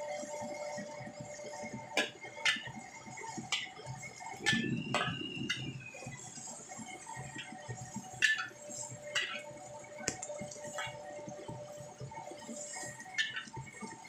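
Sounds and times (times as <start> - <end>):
metal spatula scraping wok: 9.2 - 9.5.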